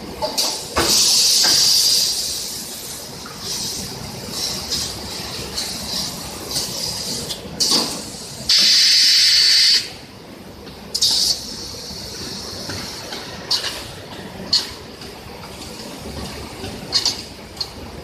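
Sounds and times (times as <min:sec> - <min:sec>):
sharp puffs of air exhaust: 0:00.4 - 0:10.0, 0:10.9 - 0:13.8
compressed air hissing: 0:00.8 - 0:09.9.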